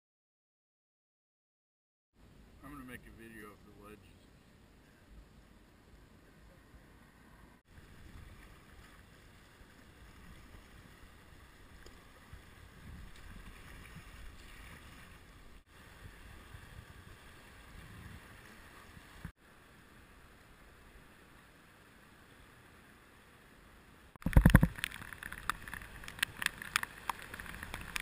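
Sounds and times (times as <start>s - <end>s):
wind buffeting the microphone: 10.0s - 19.3s.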